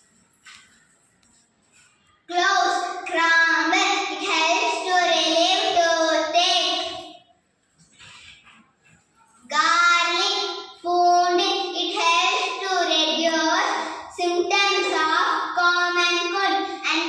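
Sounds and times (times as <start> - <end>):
girl singing: 2.3 - 7.1, 9.4 - 17.0.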